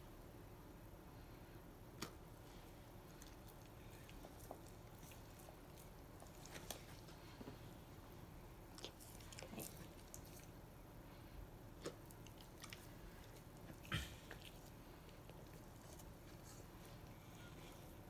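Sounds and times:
dog chewing food: 0:02.6 - 0:07.4, 0:08.6 - 0:10.6, 0:11.7 - 0:17.3.

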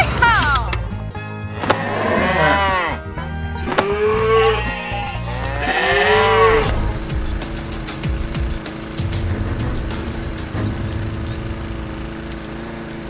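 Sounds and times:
cows mooing: 0:01.6 - 0:08.3
steady rushing noise with low hum: 0:06.3 - 0:13.0.

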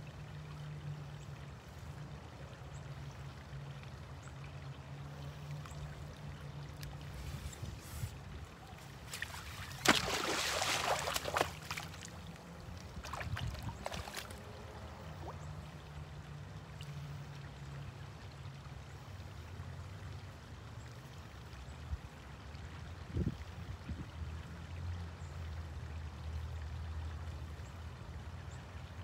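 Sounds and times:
rope drawn through water: 0:06.7 - 0:15.4
magnet splashing into water: 0:09.0 - 0:12.1.

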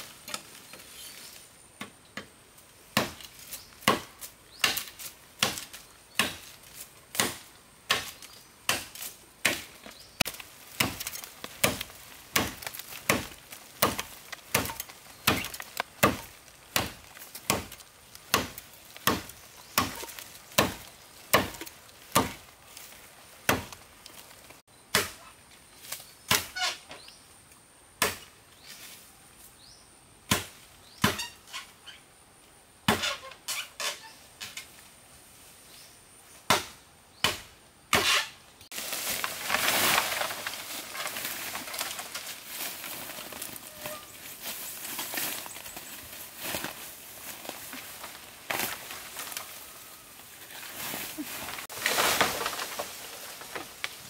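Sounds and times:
blade chopping bamboo: 0:03.0 - 0:22.5, 0:23.4 - 0:23.8.

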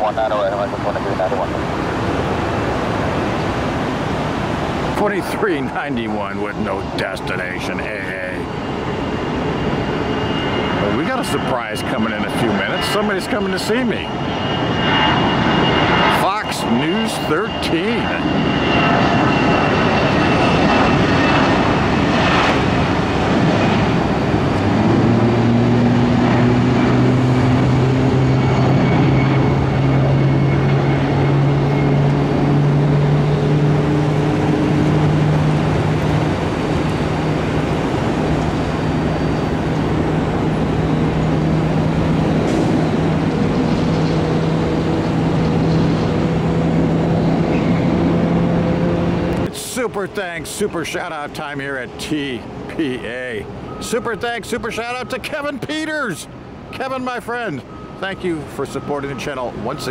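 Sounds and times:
jet airliner engines taking off: 0:00.0 - 0:59.9.

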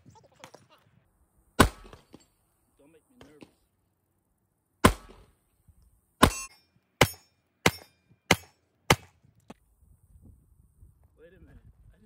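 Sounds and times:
pistol shots: 0:01.6 - 0:02.1, 0:04.8 - 0:05.3.

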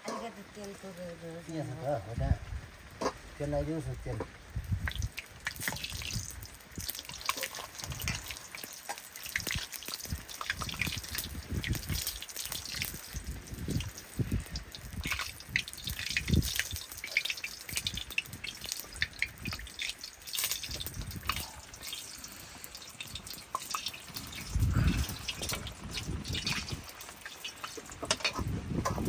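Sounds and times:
water dripping: 0:02.7 - 0:29.0
dull low thumps: 0:24.4 - 0:26.9.

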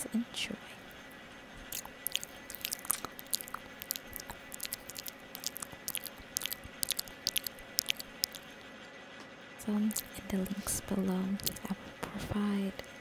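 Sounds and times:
lip smacks and mouth clicks: 0:01.6 - 0:08.7, 0:09.9 - 0:10.6, 0:11.4 - 0:11.8.

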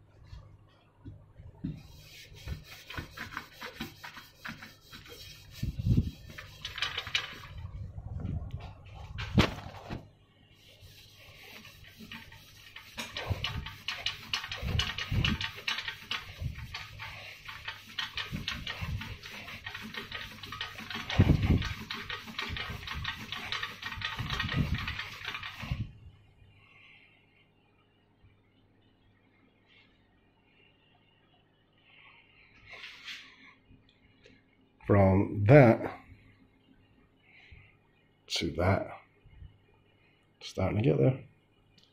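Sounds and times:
hand scrubbing metal tube: 0:01.8 - 0:07.6, 0:10.6 - 0:25.8.

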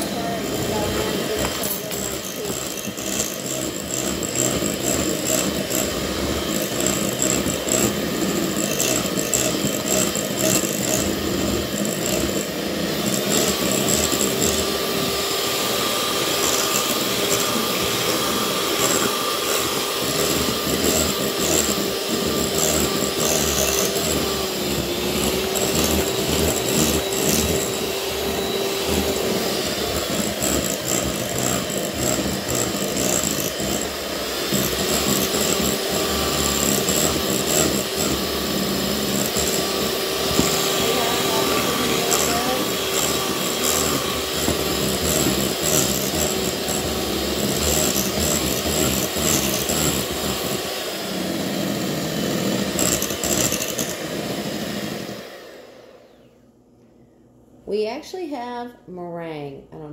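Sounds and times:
electric hand mixer running: 0:00.0 - 0:56.3
mixer motor whine: 0:00.0 - 0:56.5.

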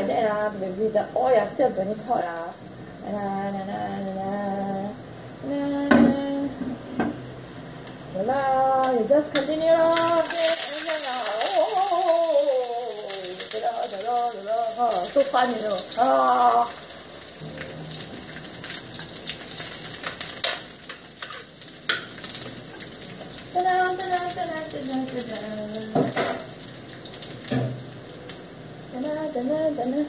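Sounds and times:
food sizzling in oil: 0:08.9 - 0:30.0.

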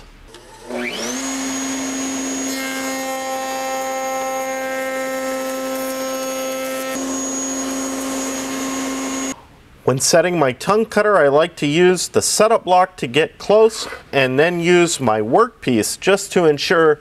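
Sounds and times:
router cutting wood: 0:00.3 - 0:09.4
router whining: 0:00.3 - 0:09.4.

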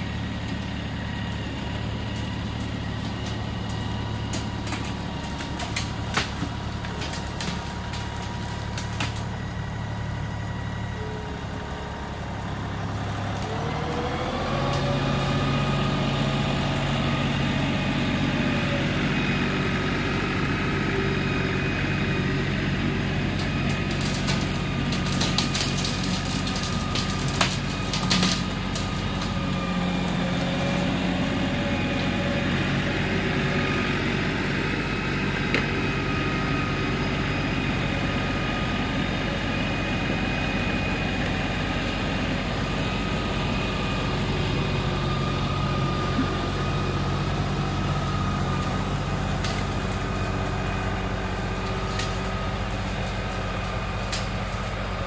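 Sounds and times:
tractor diesel engine running: 0:00.0 - 0:55.0
branches snapping: 0:01.3 - 0:09.4, 0:13.2 - 0:16.4, 0:23.3 - 0:32.1, 0:47.7 - 0:54.8.

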